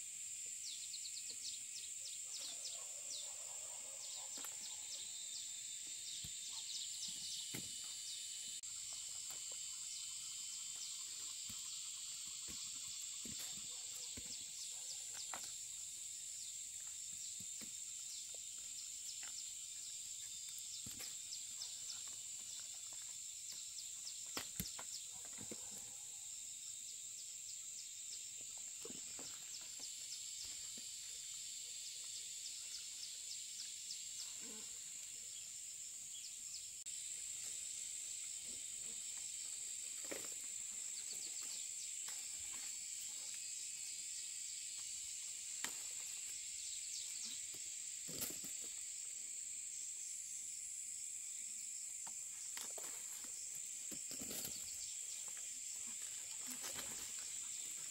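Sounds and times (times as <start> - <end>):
insects buzzing: 0.0 - 57.9.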